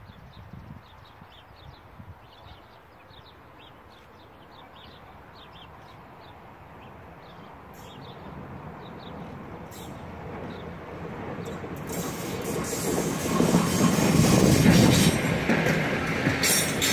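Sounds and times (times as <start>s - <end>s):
small birds chirping: 0.3s - 12.7s
freight train rumble: 2.8s - 16.9s.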